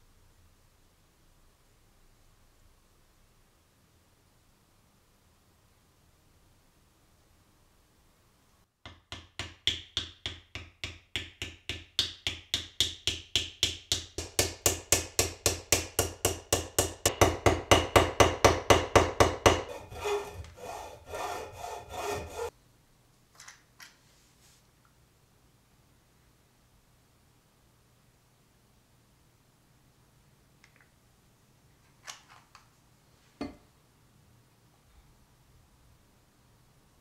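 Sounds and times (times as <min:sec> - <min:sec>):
tool scraping wood: 0:14.2 - 0:22.5.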